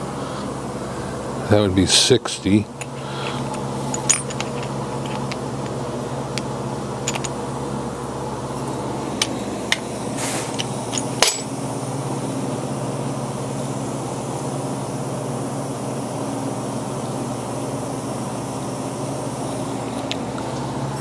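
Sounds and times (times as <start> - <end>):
machine hum: 0.0 - 21.0
small metallic clinks: 3.5 - 5.4, 7.0 - 7.4, 10.6 - 11.5.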